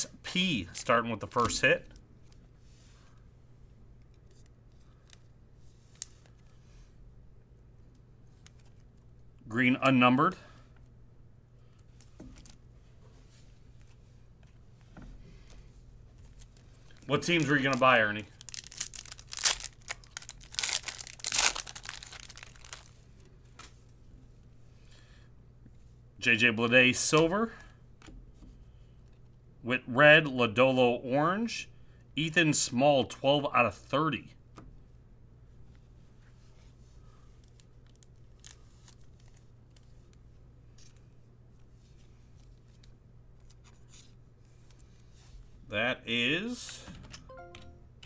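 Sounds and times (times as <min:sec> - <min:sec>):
low electrical hum: 0:00.0 - 0:48.0
foil wrapper crinkling and tearing: 0:16.8 - 0:23.0, 0:37.4 - 0:39.9.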